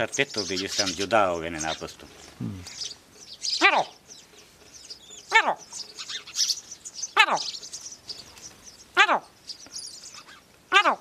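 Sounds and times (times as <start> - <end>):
small birds chirping: 0.0 - 11.0
man imitating animal call: 2.4 - 2.8.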